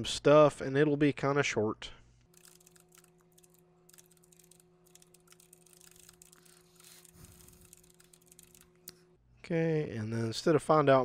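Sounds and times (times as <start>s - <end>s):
low steady hum: 0.0s - 11.0s
keyboard typing: 2.4s - 9.0s.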